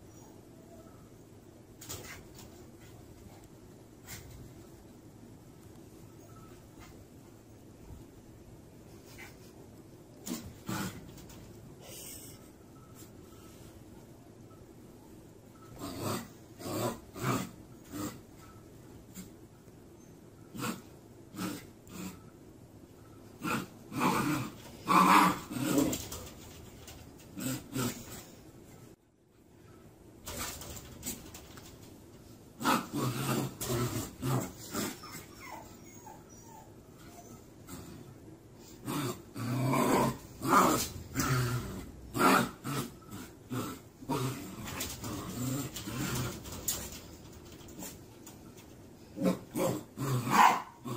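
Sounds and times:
puppy growling and yipping: 0:23.4 - 0:26.3, 0:32.6 - 0:38.0, 0:49.2 - 0:50.9
puppy growling and yapping: 0:23.4 - 0:28.3, 0:32.6 - 0:48.0, 0:49.2 - 0:50.9.

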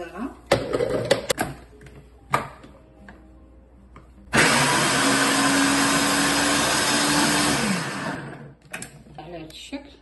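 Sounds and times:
blender motor running: 0:04.3 - 0:08.6.

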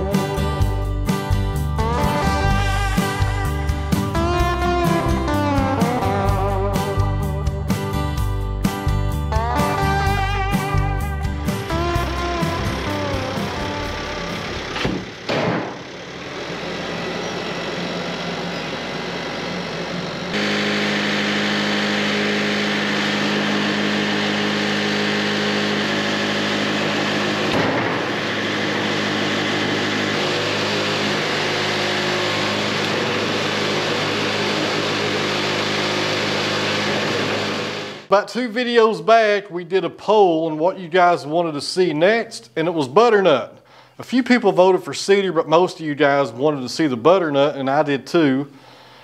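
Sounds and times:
engine running: 0:00.0 - 0:38.1.

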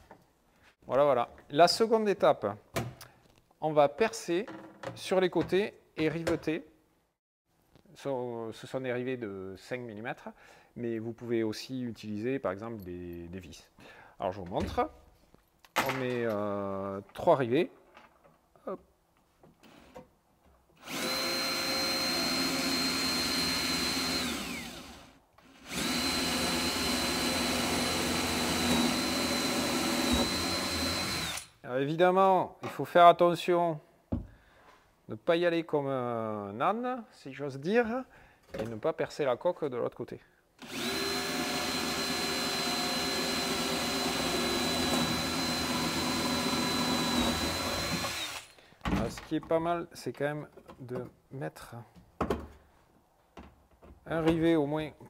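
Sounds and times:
cordless drill running: 0:20.8 - 0:31.5, 0:40.6 - 0:48.5.

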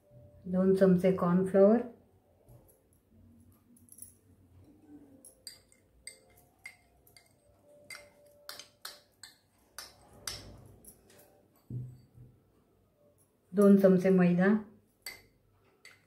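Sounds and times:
spoon tapping ceramic bowl: 0:05.2 - 0:10.6, 0:15.0 - 0:16.0.

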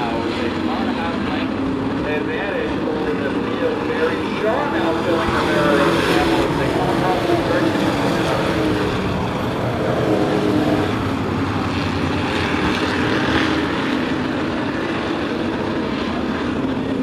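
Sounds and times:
race truck engines at speed: 0:00.0 - 0:17.0.

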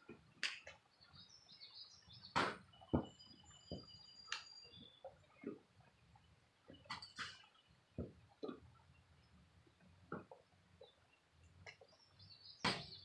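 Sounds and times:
birds chirping: 0:00.0 - 0:13.0
knocks and thumps: 0:02.4 - 0:04.0, 0:08.0 - 0:08.6.

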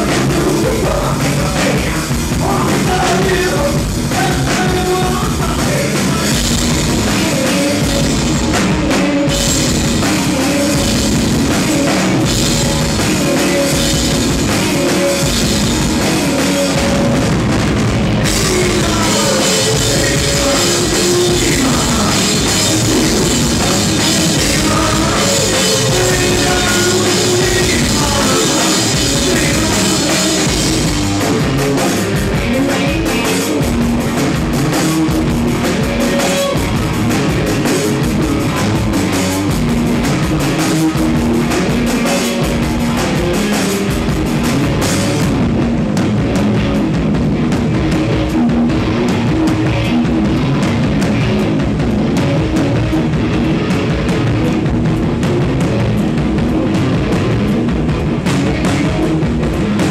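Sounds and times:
drum kit pounding: 0:00.0 - 0:59.9
electric guitar: 0:00.0 - 0:59.9.

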